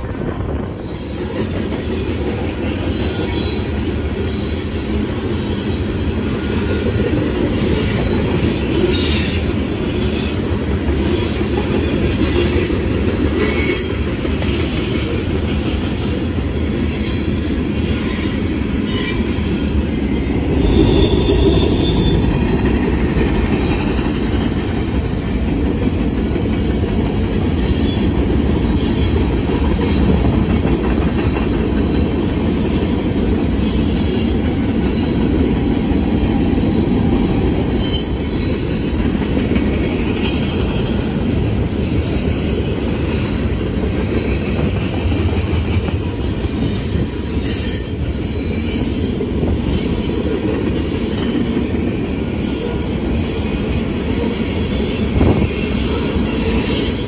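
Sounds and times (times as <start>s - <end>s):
train wheels rumbling on rail: 0.0s - 57.0s
high wheel squeals: 46.3s - 51.7s.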